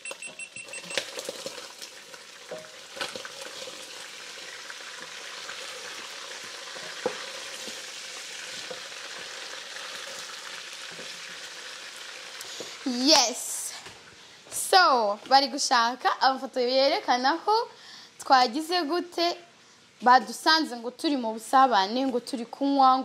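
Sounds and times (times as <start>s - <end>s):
food sizzling in a pot: 0.4s - 14.2s.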